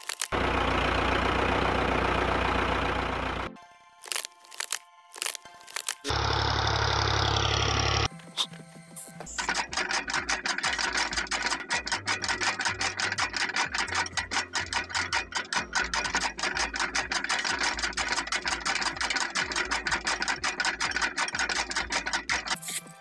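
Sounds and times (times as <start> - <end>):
small motor humming: 0.0 - 9.5
chaff cutter blades clattering: 9.2 - 23.0.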